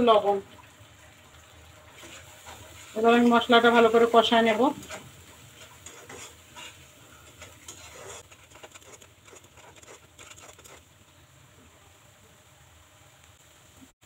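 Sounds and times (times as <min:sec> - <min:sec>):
faint sizzle: 0:00.0 - 0:14.0
spatula scraping a pan: 0:01.9 - 0:03.0, 0:04.5 - 0:10.9.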